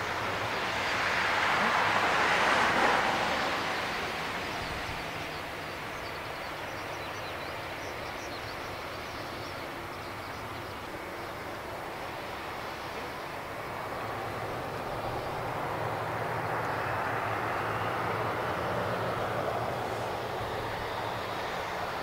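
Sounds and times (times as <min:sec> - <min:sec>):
jet engines roaring: 0:10.4 - 0:22.0.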